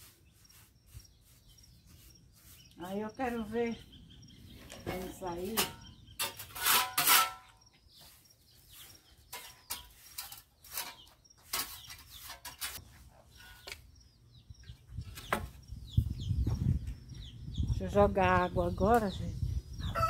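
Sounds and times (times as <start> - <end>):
stiff broom scrubbing a floor: 0.0 - 3.6.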